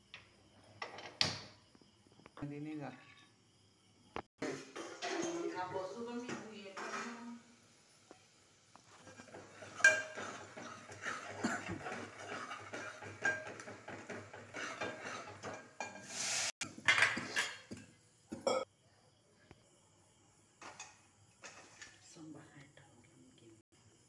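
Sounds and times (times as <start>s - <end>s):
ladle scraping a metal pot: 6.7s - 7.3s, 8.9s - 17.6s.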